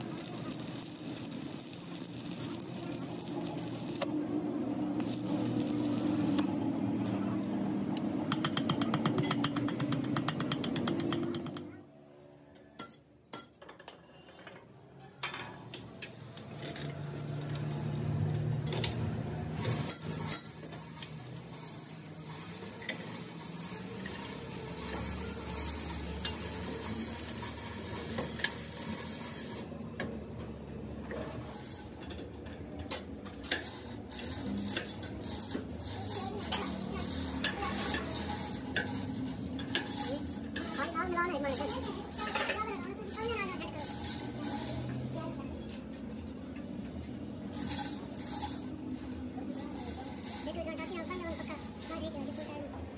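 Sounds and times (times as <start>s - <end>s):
dense crackle: 0.0s - 4.1s
steel tools clinking: 0.0s - 6.9s, 33.5s - 44.9s
steady background noise: 0.0s - 52.9s.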